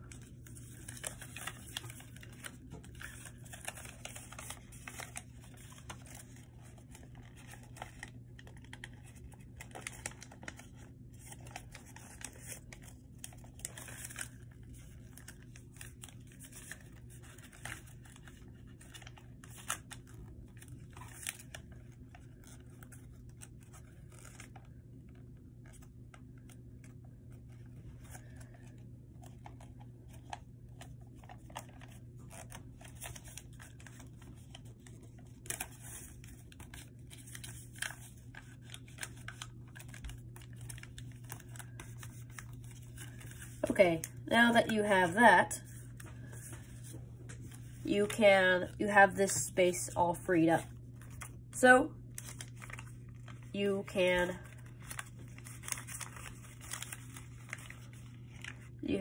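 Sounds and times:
paper being folded and creased: 0.0 - 44.2, 44.8 - 51.4, 52.0 - 59.0
steady low hum: 0.0 - 59.0.

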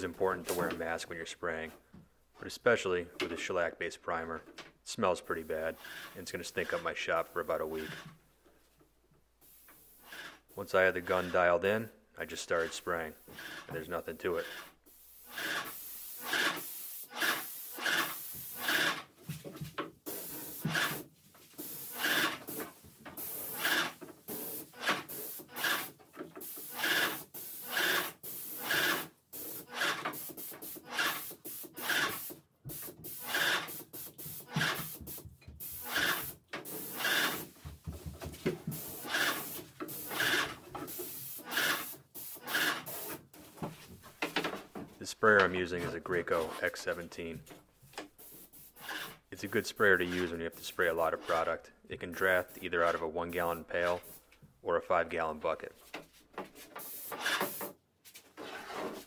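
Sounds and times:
paint sprayer hissing: 5.3 - 8.0, 9.4 - 11.5, 12.6 - 43.6, 47.9 - 54.4, 56.5 - 57.8.

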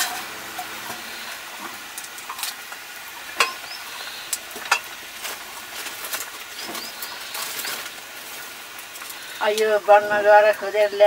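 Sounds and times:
curry sizzling and bubbling: 0.0 - 11.0.

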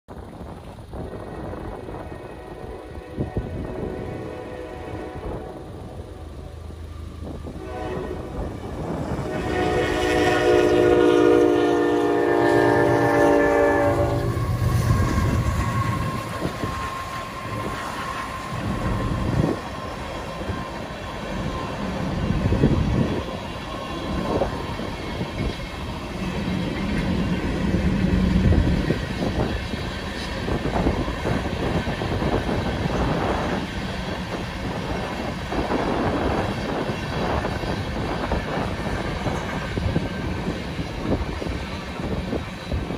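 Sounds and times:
train horn chord: 1.8 - 6.6, 7.4 - 19.9
train wheels clacking on rails: 8.2 - 42.9.

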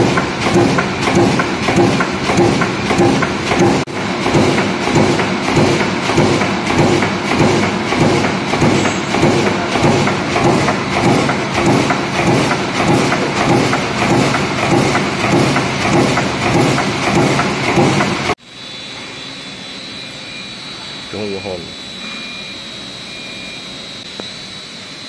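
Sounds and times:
hydraulic punch press thudding: 0.0 - 18.4.

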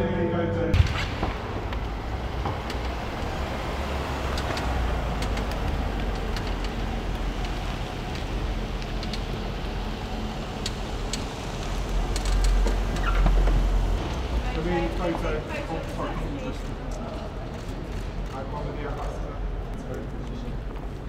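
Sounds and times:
car driving slowly over paving: 1.2 - 21.0.

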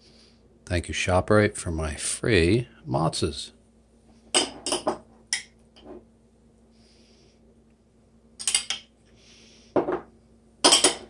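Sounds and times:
kitchen items clicking and knocking: 9.8 - 11.0.

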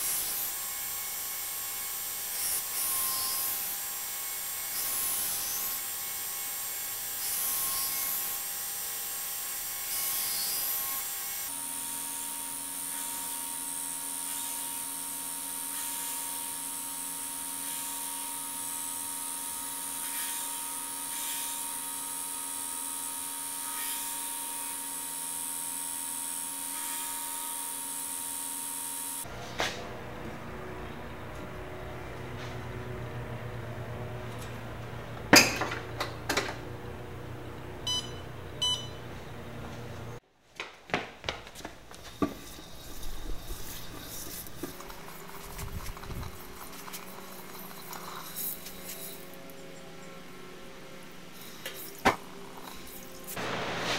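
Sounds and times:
knife grinding on belt: 42.1 - 49.5.

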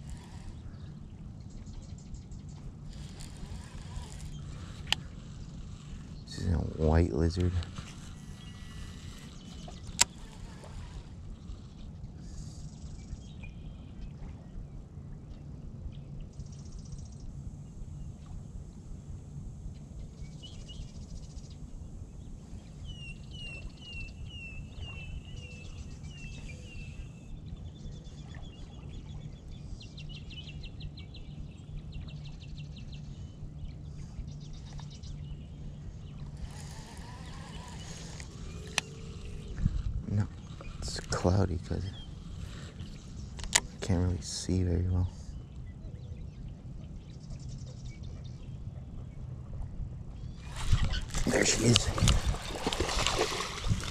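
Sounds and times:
birds calling and trilling: 0.0 - 14.7, 19.3 - 53.9
wind rumble on microphone: 0.0 - 53.9
sharp click: 43.4 - 43.7.

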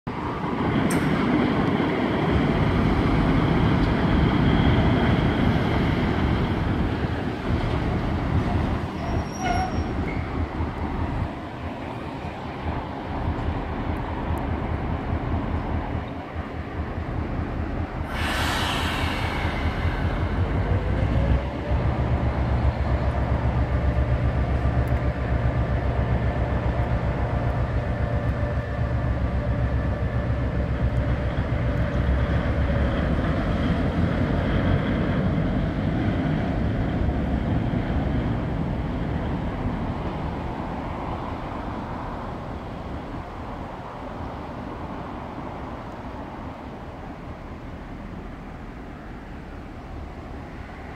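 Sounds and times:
locomotive diesel engine running: 1.4 - 45.0
brief hiss: 18.1 - 20.4.

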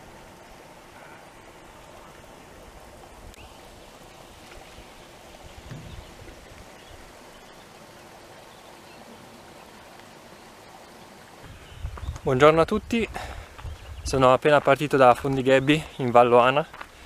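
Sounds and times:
flowing water rushing: 0.0 - 17.0
low bump: 5.6 - 6.5.

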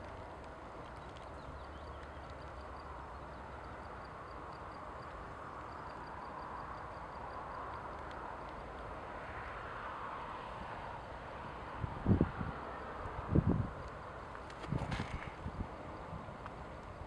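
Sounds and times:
faint high ticks: 0.0 - 9.0, 16.4 - 17.0.

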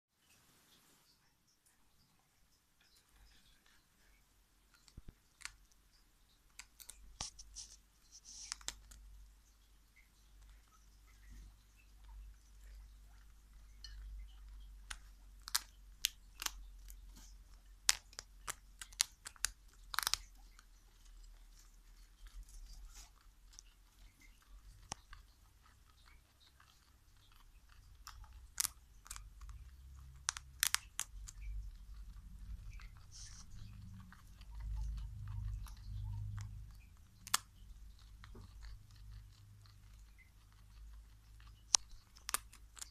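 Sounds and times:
guinea pigs nibbling: 0.1 - 42.9
sharp crunches of chewing: 10.5 - 42.9.

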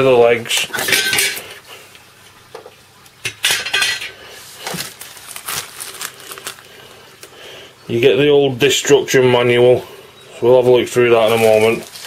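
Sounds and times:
scraping rustle of packing: 4.4 - 6.7, 11.2 - 12.0.

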